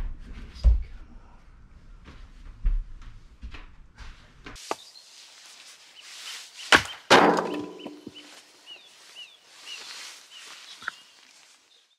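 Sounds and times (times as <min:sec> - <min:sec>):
bird chirping: 0:04.6 - 0:11.9
axe splitting log: 0:06.7 - 0:08.0
wood clattering: 0:06.7 - 0:08.2.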